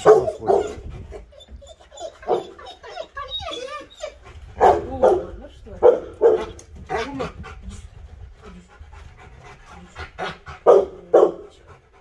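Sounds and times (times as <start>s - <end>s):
dog barking: 0.0s - 0.8s, 4.6s - 6.6s, 10.6s - 11.4s
dog panting: 0.0s - 12.0s.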